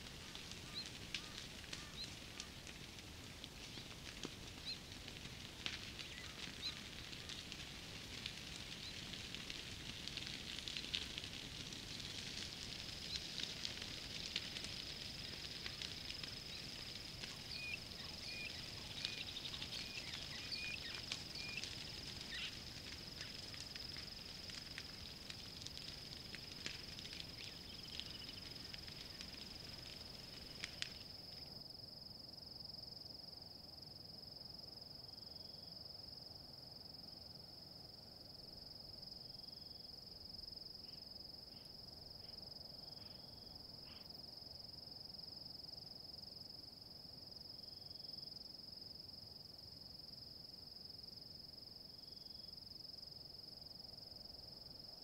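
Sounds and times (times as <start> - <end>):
fire crackling and popping: 0.0 - 31.6.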